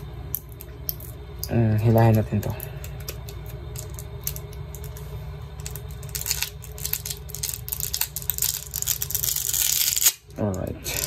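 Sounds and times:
steady low hum: 0:00.0 - 0:11.0
adhesive strip crackling: 0:05.6 - 0:11.0.

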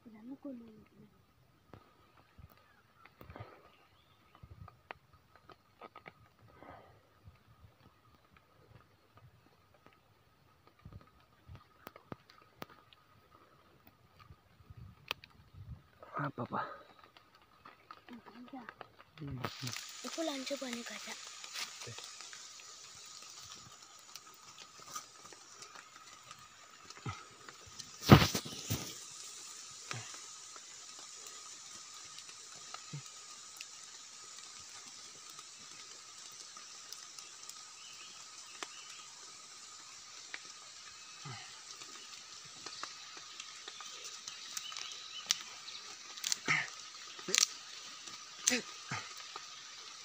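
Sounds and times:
mushrooms snapping: 0:16.9 - 0:20.2, 0:21.0 - 0:37.6, 0:39.6 - 0:50.0
leaf litter rustling: 0:17.0 - 0:50.0.

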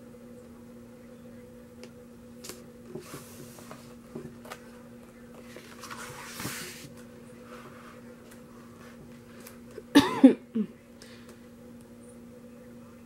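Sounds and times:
low hum: 0:00.0 - 0:13.0
paper rustling: 0:02.4 - 0:09.6.

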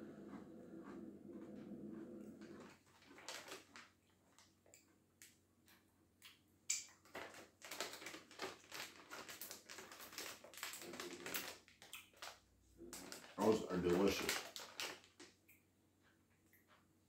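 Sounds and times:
pretzel crunching while chewed: 0:00.3 - 0:15.4
plastic snack bag crinkling: 0:02.5 - 0:05.3, 0:06.8 - 0:15.4.

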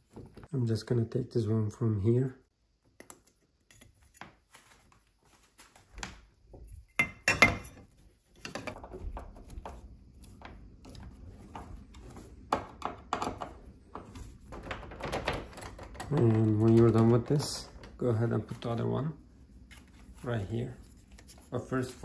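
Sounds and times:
soft rubbing: 0:18.4 - 0:22.0.

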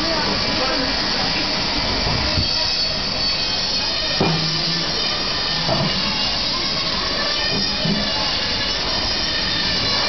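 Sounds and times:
band saw grinding: 0:02.4 - 0:10.0.

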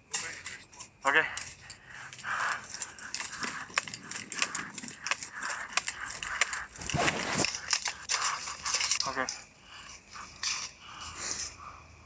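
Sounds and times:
footsteps scuffing: 0:06.8 - 0:07.6.

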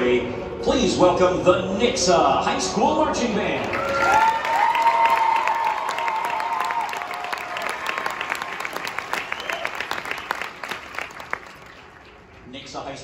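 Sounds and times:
crowd applauding and cheering: 0:03.5 - 0:12.5
crowd shouts: 0:03.7 - 0:08.5.

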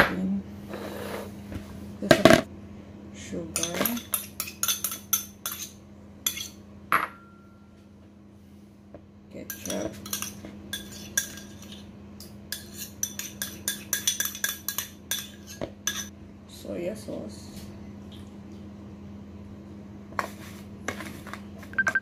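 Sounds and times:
metal spoon scraping bowls: 0:03.6 - 0:06.6, 0:09.5 - 0:16.1.

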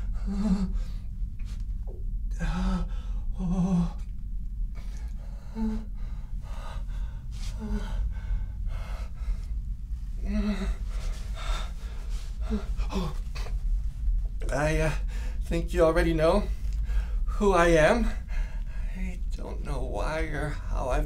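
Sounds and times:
man gasping and breathing hard: 0:00.0 - 0:01.5, 0:02.3 - 0:04.1, 0:04.8 - 0:09.5, 0:10.1 - 0:13.6
low steady hum: 0:00.0 - 0:21.0.

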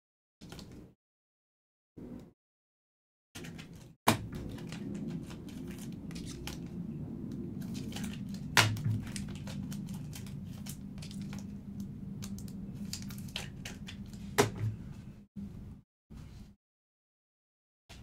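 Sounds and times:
wrapper crinkling: 0:07.6 - 0:11.6
cards rustling: 0:07.6 - 0:14.4.

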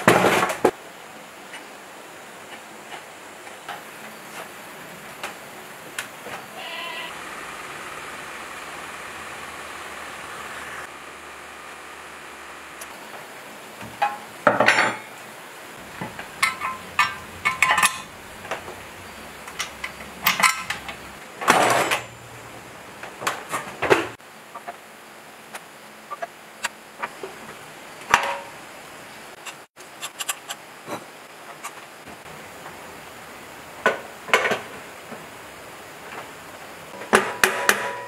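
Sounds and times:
metal tools clinking and clanking: 0:16.0 - 0:18.1, 0:19.6 - 0:22.2.

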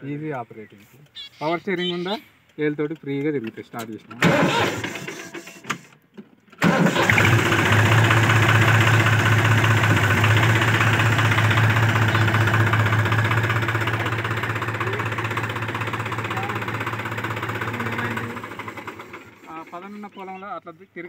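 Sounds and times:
tractor diesel engine running: 0:04.2 - 0:05.9, 0:06.6 - 0:20.4.

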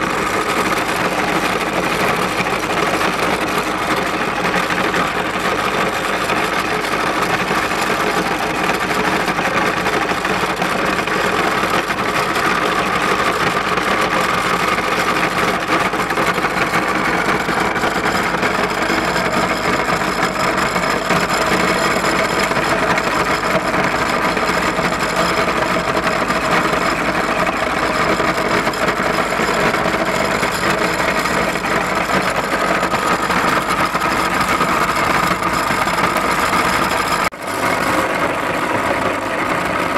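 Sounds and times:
meat grinder humming: 0:00.0 - 0:39.9.

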